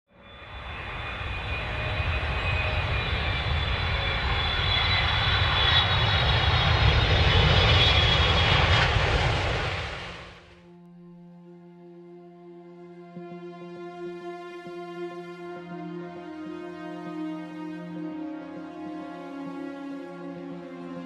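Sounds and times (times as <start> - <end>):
drone propellers whining: 0.2 - 10.6.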